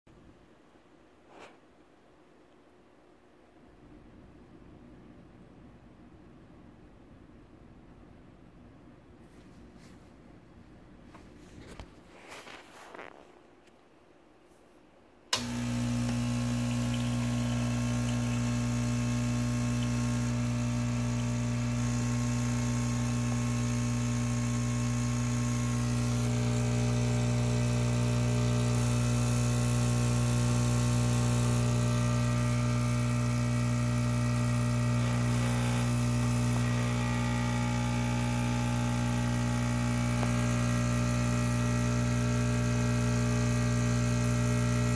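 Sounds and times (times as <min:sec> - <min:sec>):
pump switch click: 0:15.4 - 0:16.2
espresso machine pump buzzing: 0:15.4 - 0:44.9.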